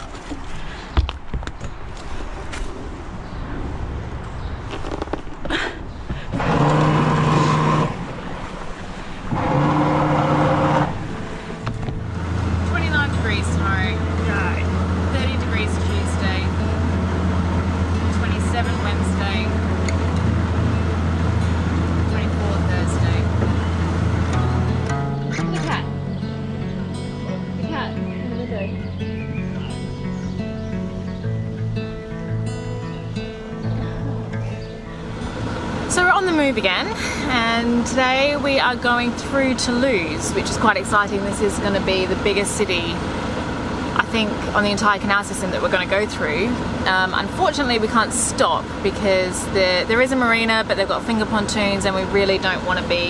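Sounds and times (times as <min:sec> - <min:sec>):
churned water rushing: 0:00.0 - 0:01.0, 0:06.2 - 0:25.9, 0:33.4 - 0:53.0
boat motor running hard: 0:06.3 - 0:30.3, 0:33.6 - 0:53.0
background guitar music: 0:09.4 - 0:43.6.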